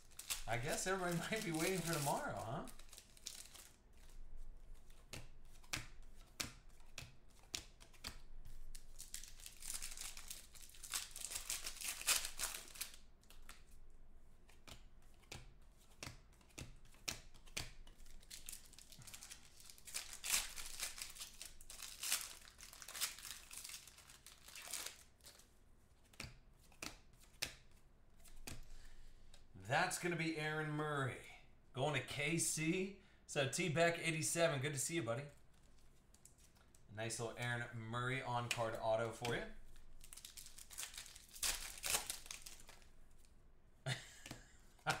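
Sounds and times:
foil wrappers crinkling and tearing: 0.0 - 4.2, 8.6 - 13.1, 18.0 - 25.4, 38.5 - 43.3
cards rustling and clicking: 0.0 - 29.5, 34.8 - 37.4, 38.1 - 43.3.

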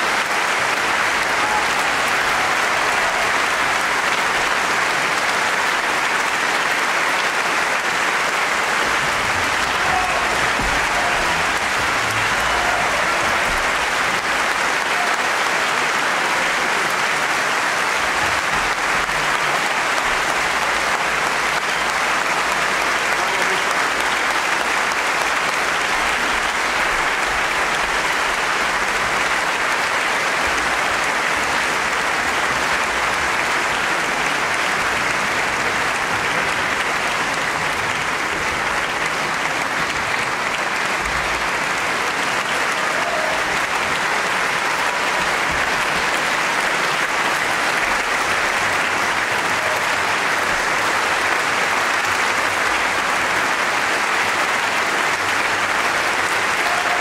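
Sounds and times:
audience applause: 0.0 - 57.0.

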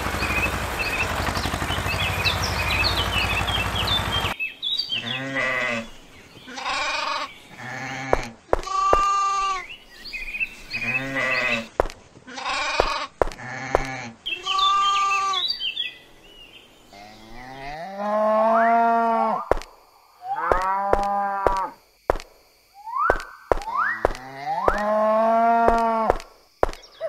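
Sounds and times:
cows mooing: 5.0 - 5.9, 10.8 - 11.7, 17.0 - 19.5, 20.2 - 21.8, 24.0 - 26.2
sheep bleating: 6.5 - 9.7, 10.8 - 11.7, 12.3 - 15.4
sharp clicks: 11.7 - 12.1, 12.8 - 13.9, 19.5 - 19.9, 20.5 - 24.9, 25.7 - 27.0.

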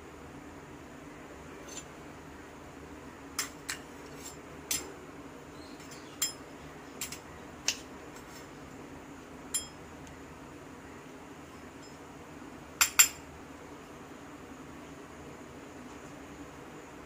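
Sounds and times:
spoon clinking against metal bowl: 5.8 - 6.4, 9.5 - 9.8, 12.8 - 13.2.

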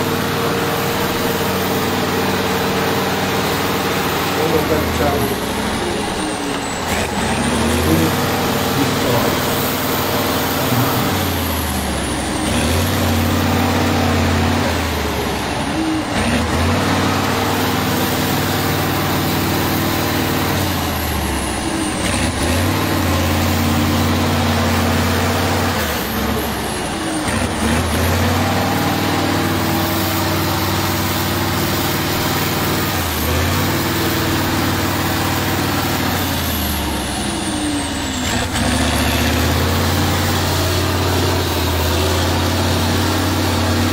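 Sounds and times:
diesel truck engine revving: 0.0 - 43.9
truck churning through wet sand: 0.0 - 43.9.

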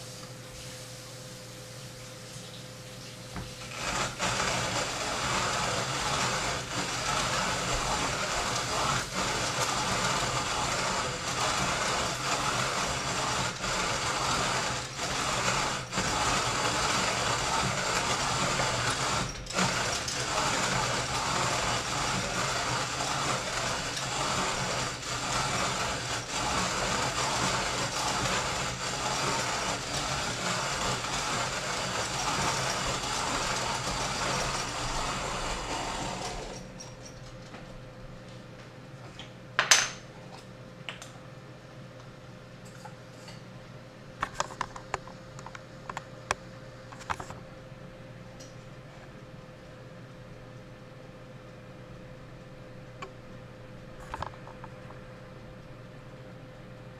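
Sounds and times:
hand grinder crunching coffee beans: 3.6 - 36.7.

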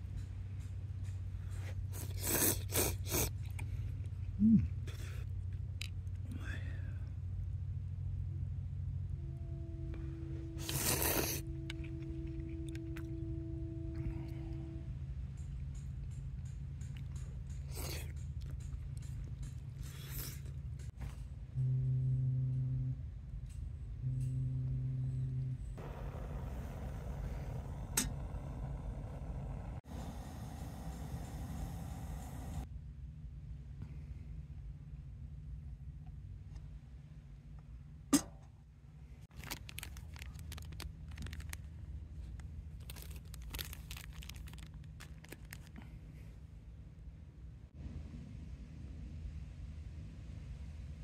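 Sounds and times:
constant low rumble: 0.0 - 51.0
low horn blasts: 8.7 - 15.6, 21.4 - 32.6
steady hiss: 25.8 - 32.7
plastic wrappers crinkling: 39.3 - 45.9.

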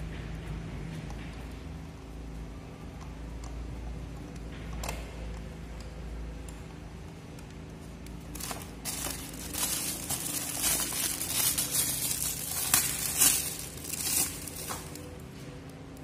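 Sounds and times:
plastic bags and cardboard rustling: 8.2 - 15.8.

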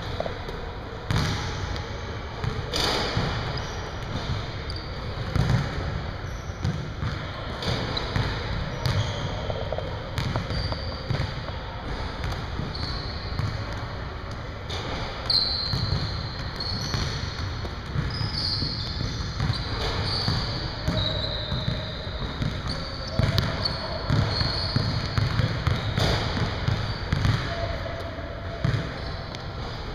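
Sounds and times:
sneakers squeaking: 0.0 - 29.9
basketball bouncing on wooden floor: 5.3 - 5.6, 6.6 - 11.5, 18.8 - 21.8, 22.4 - 27.4.

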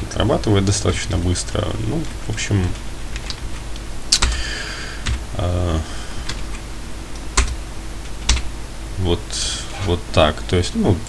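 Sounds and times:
keystrokes on a computer keyboard: 2.6 - 3.6, 4.2 - 4.4, 7.4 - 7.6, 8.2 - 8.5
man humming: 5.3 - 5.9.

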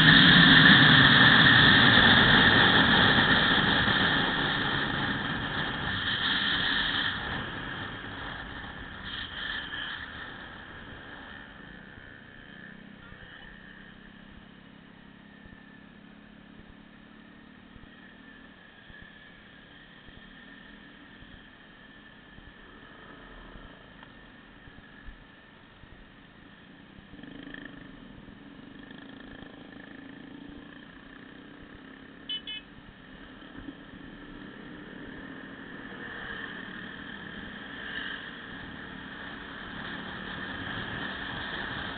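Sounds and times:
wind noise: 0.0 - 11.3
road noise: 0.0 - 41.9
small motorcycle engine droning: 0.0 - 41.9
quick high beeps: 32.3 - 32.7.

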